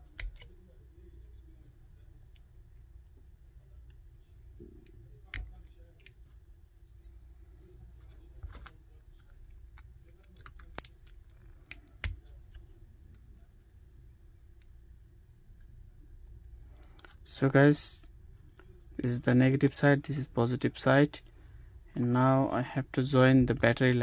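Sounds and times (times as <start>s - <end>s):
small metal clicks and snips: 0.0s - 0.5s, 9.5s - 12.6s.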